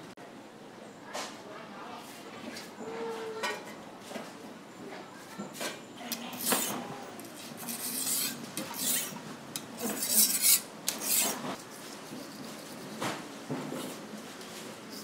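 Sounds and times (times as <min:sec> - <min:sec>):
knife scraping on sharpening stone: 0:06.3 - 0:06.8, 0:07.6 - 0:09.2, 0:09.8 - 0:11.4.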